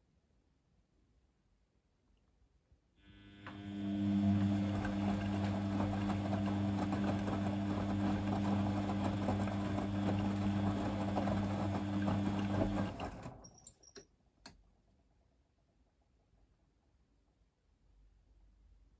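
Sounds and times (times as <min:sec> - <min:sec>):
washing machine motor hum: 0:03.0 - 0:13.6.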